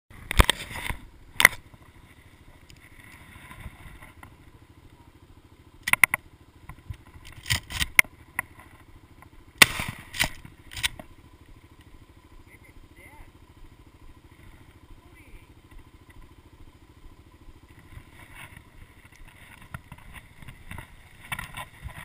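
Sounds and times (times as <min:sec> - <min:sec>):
atv engine idling: 0:00.1 - 0:22.0.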